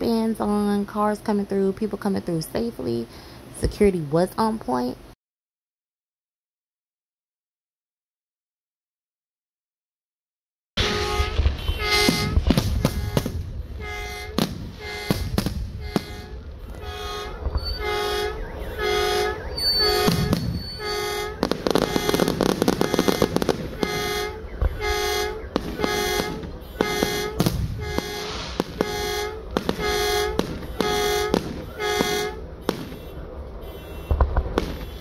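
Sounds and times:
fireworks crackling and bursting: 0:10.8 - 0:35.0
vehicle air horn honking: 0:10.8 - 0:35.0.

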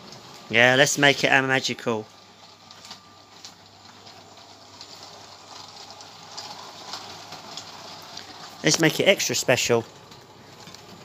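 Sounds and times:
toy train running on track: 0:00.0 - 0:11.0
wheels clicking over track: 0:00.0 - 0:11.0.

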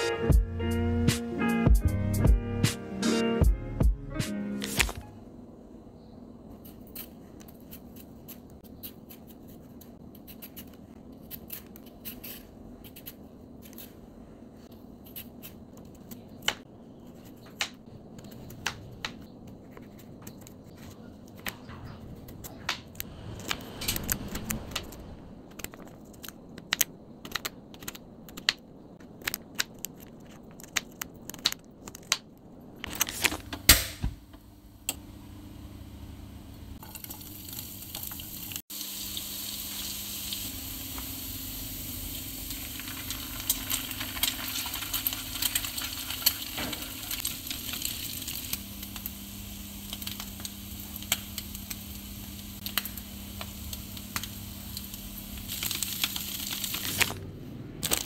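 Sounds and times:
faint steady hum: 0:04.8 - 0:58.0.

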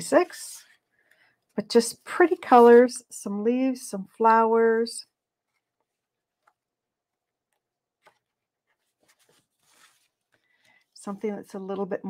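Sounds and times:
paper rustling: 0:07.9 - 0:11.0.

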